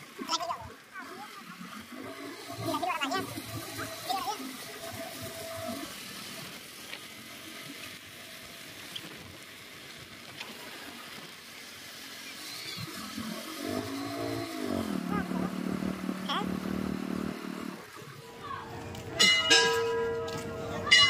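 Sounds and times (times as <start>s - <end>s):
engine-like note: 13.2s - 21.0s.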